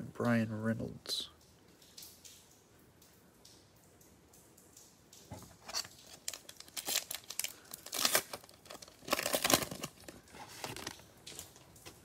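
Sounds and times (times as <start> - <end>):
card pack wrapper crinkling: 5.5 - 12.0.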